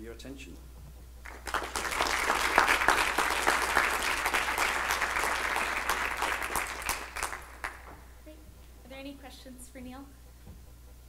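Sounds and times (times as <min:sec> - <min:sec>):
small audience applauding: 0:01.2 - 0:08.1.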